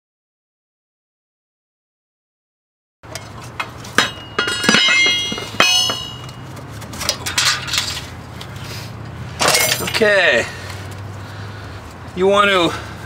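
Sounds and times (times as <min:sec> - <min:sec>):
steel tools clinking on metal: 0:03.1 - 0:08.1, 0:09.4 - 0:10.1
metal scraping: 0:03.1 - 0:10.1.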